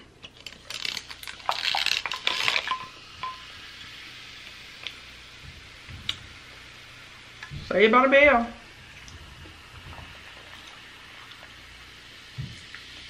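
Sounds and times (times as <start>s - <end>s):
faint steady hiss: 0.0s - 13.0s
drink pouring into tumbler: 0.4s - 5.1s.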